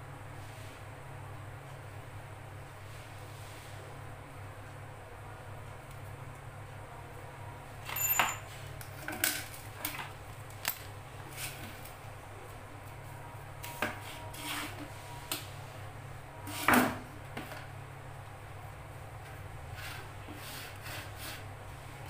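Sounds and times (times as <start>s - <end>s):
saw blade scraping pipe: 14.0s - 14.9s, 19.7s - 21.4s.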